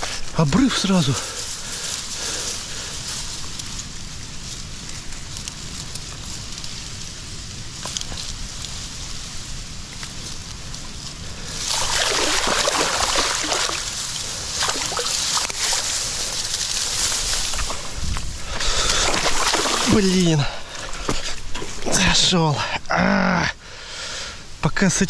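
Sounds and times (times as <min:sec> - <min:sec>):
wind rumble on microphone: 0:01.6 - 0:20.1
water splashing: 0:11.6 - 0:17.9, 0:18.8 - 0:20.9.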